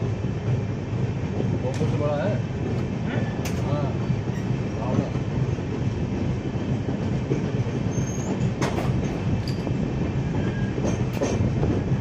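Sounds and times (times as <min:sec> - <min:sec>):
train rumbling on rails: 0:00.0 - 0:12.0
wheels clicking over rail joints: 0:07.0 - 0:09.8, 0:10.4 - 0:11.8
faint wheel squeals: 0:07.9 - 0:08.4.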